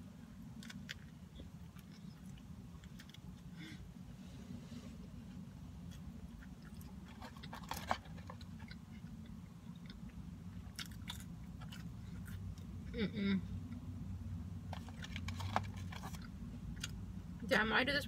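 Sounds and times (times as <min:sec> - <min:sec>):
steady low hum: 0:00.0 - 0:18.0
person chewing: 0:00.4 - 0:03.8, 0:05.8 - 0:13.0.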